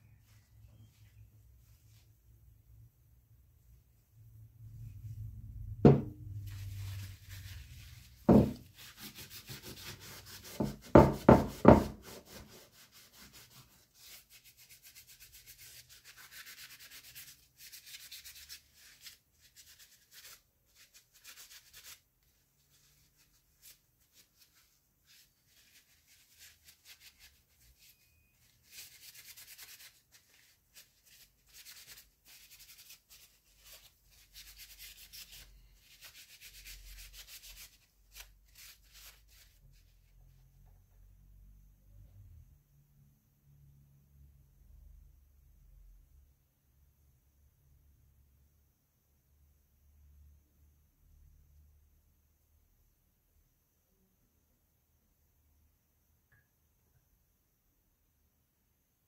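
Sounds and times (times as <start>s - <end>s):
knocks: 5.8s - 6.2s
paper towel rubbing metal: 6.4s - 39.8s.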